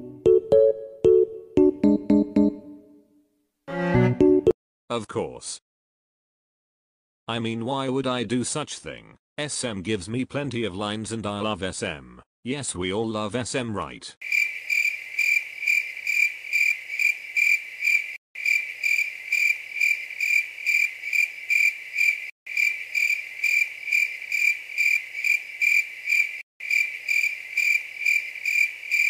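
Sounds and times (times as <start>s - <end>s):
crickets chirping: 14.2s - 29.0s.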